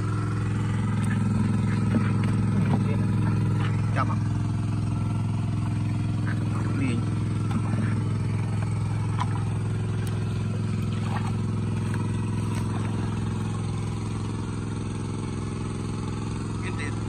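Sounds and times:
water pump engine humming: 0:00.0 - 0:17.0
splashes in mud: 0:07.3 - 0:14.5.

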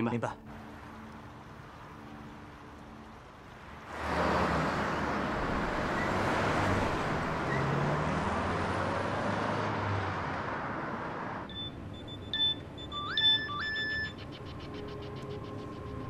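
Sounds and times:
cars driving past on highway: 0:00.5 - 0:13.0.

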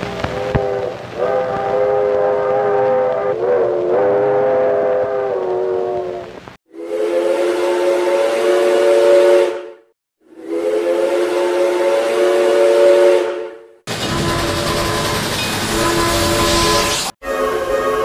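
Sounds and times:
steam hissing: 0:00.0 - 0:06.5, 0:13.9 - 0:17.9
hissy steam whistle: 0:00.0 - 0:18.0
steam locomotive chime whistle: 0:00.0 - 0:18.0.

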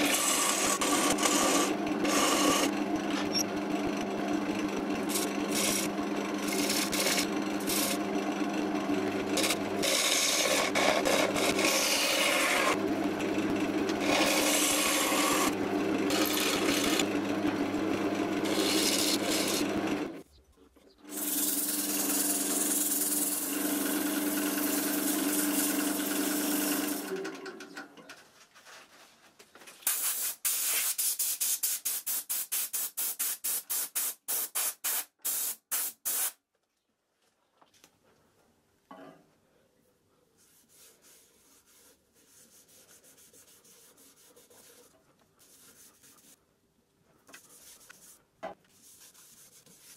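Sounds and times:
turning tool scraping wood: 0:00.0 - 0:20.2
wood lathe motor humming: 0:00.0 - 0:20.2, 0:21.1 - 0:27.6
hand sanding wood: 0:40.4 - 0:46.4, 0:48.8 - 0:49.9.

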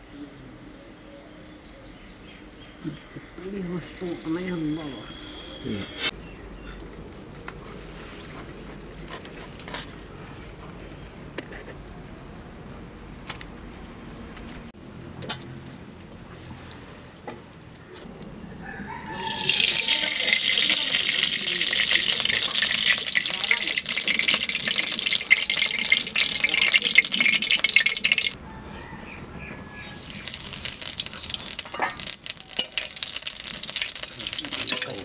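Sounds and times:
oil hissing and crackling in a wok: 0:19.1 - 0:28.4, 0:29.7 - 0:35.0.

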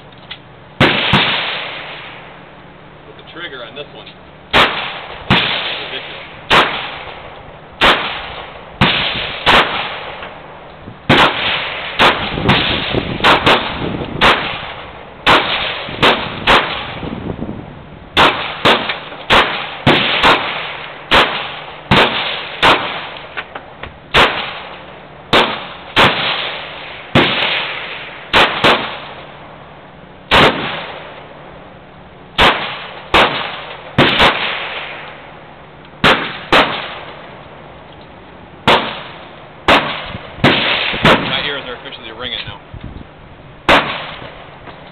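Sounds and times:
pistol shots with echo: 0:00.8 - 0:02.1, 0:04.5 - 0:07.2, 0:07.8 - 0:10.3, 0:11.1 - 0:17.0, 0:18.2 - 0:23.2, 0:24.1 - 0:29.3, 0:30.3 - 0:31.2, 0:32.4 - 0:35.0, 0:36.0 - 0:37.2, 0:38.6 - 0:41.8, 0:43.7 - 0:44.4.

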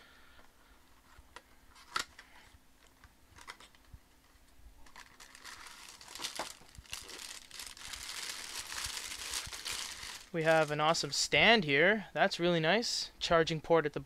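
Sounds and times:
plastic bag crinkling: 0:04.8 - 0:10.9.

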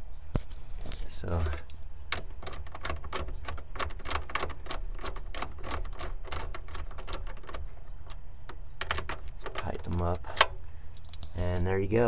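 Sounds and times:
hand ratchet clicking: 0:01.6 - 0:11.3.

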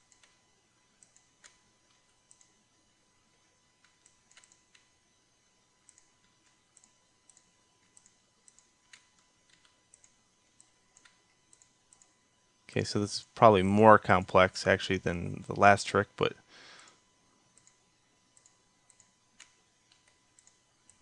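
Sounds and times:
mouse and keyboard clicks: 0:03.8 - 0:04.9.

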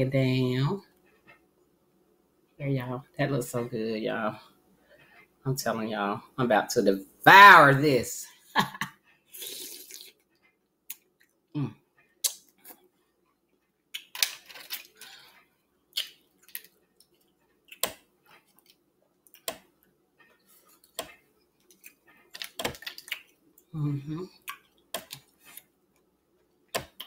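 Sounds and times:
wet chewing and lip smacking: 0:09.4 - 0:11.4, 0:15.9 - 0:19.5, 0:20.3 - 0:23.7, 0:24.4 - 0:25.7.

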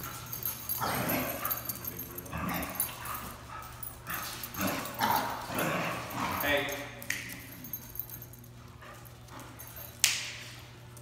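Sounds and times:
dogs vocalizing: 0:00.0 - 0:06.5.

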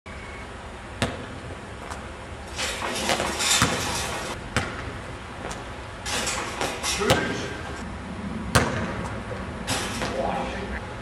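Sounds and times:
basketball knocking on concrete: 0:08.5 - 0:08.9.

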